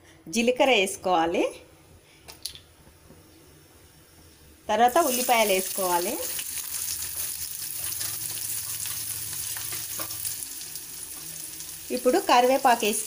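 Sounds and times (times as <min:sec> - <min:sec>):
onions sizzling in hot oil: 0:04.8 - 0:13.0.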